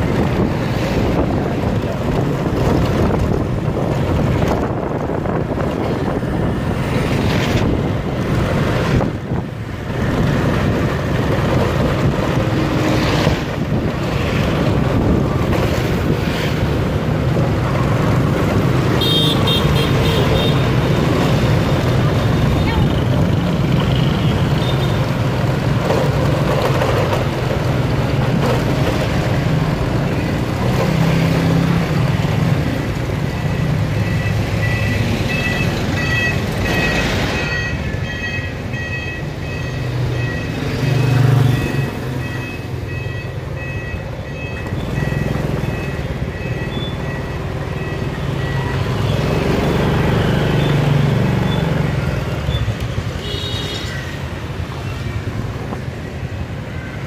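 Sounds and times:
traffic noise: 0.0 - 57.0
high electronic beep: 33.5 - 49.1.

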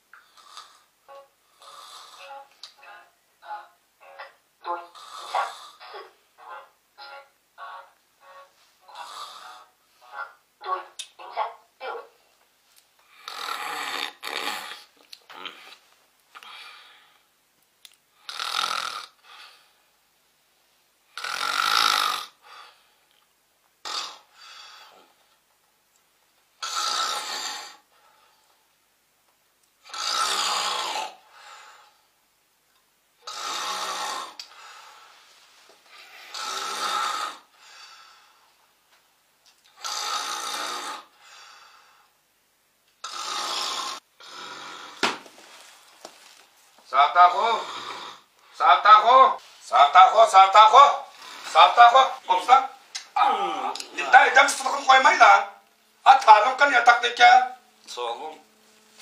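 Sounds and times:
man snoring: 1.6 - 2.4, 4.9 - 5.9, 8.9 - 9.7, 13.2 - 15.6, 18.3 - 19.2, 21.2 - 22.4, 26.6 - 27.8, 29.8 - 31.2, 33.2 - 34.4, 36.2 - 37.5, 39.8 - 41.2, 43.0 - 45.1, 47.3 - 48.3.

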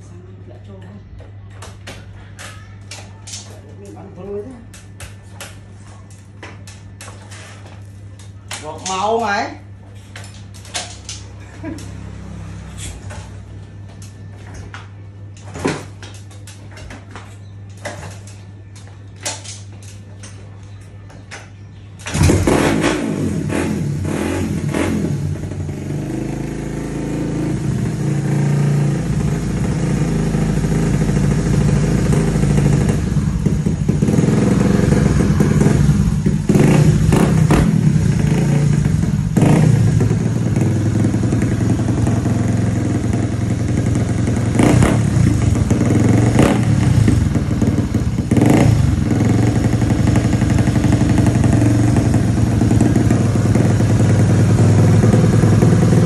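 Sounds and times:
motorcycle engine starting and revving: 10.3 - 14.2, 21.9 - 56.0.

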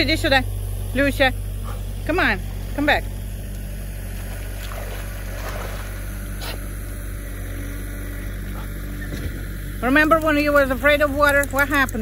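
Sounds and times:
low engine drone: 0.0 - 12.0
faint water splash: 4.2 - 6.0.

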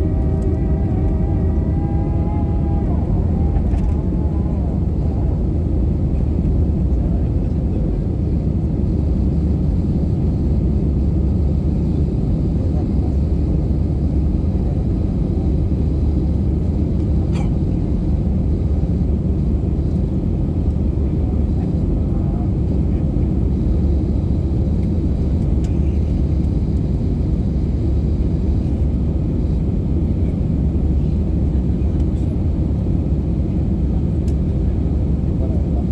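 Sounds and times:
jet engines and airflow roar: 0.0 - 35.9.

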